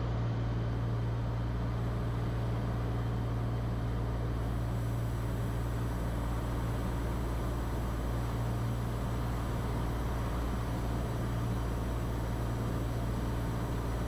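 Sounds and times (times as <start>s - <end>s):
propeller plane engine droning: 0.0s - 14.0s.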